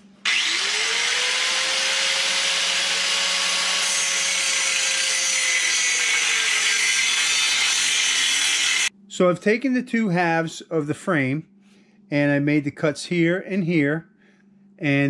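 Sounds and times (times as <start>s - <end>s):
angle grinder cutting steel: 0.2s - 8.9s.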